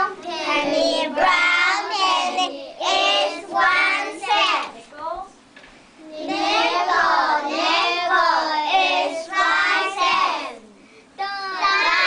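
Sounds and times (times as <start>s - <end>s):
children chanting in unison: 6.1s - 10.7s.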